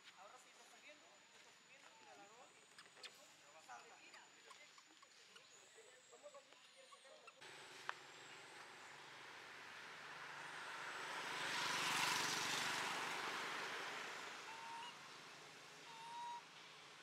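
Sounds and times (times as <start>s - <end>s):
vehicle passing by: 7.4s - 17.0s.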